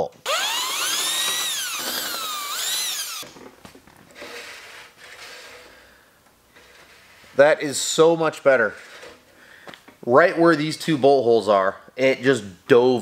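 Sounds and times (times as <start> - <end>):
cordless drill motor whine: 0.2 - 3.3.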